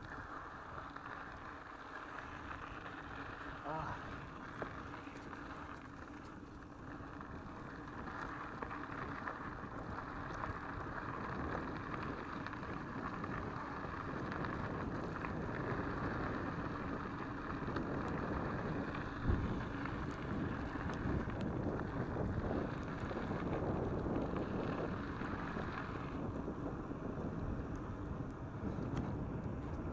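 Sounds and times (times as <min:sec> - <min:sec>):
bike tyres rumbling on gravel: 0:00.0 - 0:29.9
wind on microphone: 0:07.3 - 0:29.9.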